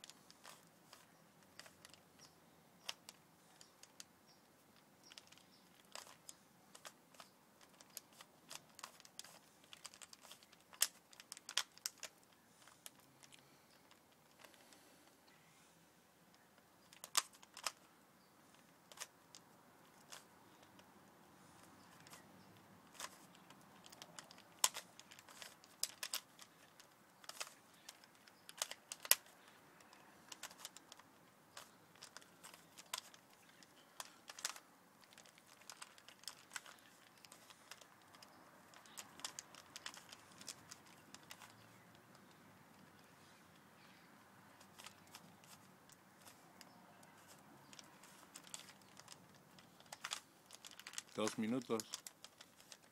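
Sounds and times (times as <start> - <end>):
puzzle cube layers clicking: 5.0 - 14.7, 22.8 - 43.1.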